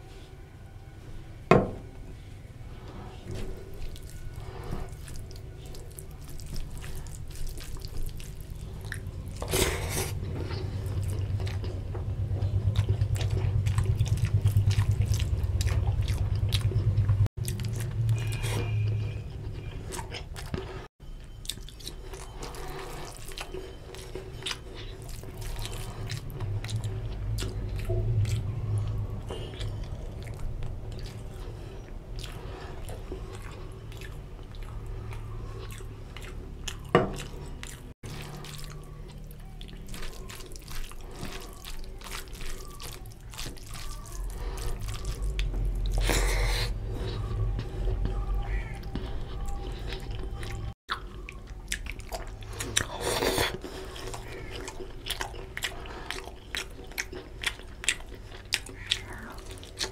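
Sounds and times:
wet chewing: 2.8 - 59.9
fingers squishing rice: 38.1 - 46.3.

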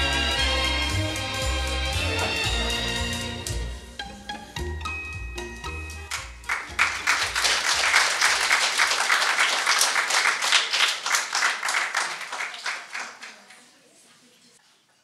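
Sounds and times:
audience applause: 6.1 - 13.5.

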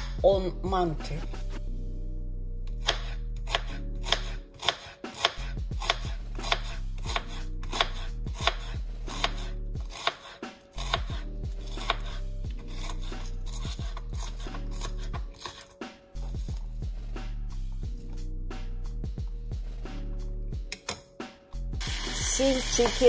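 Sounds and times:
knife chopping on cutting board: 2.8 - 16.6.

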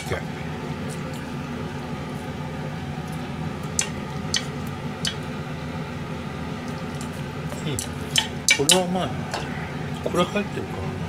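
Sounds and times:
kitchen hum: 0.0 - 11.0
chopsticks clicking on metal saucepan: 7.8 - 8.9.

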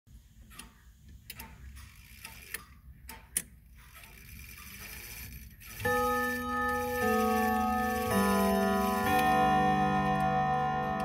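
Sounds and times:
faint mechanical whir: 0.1 - 9.1
clock ticking: 5.8 - 11.0.

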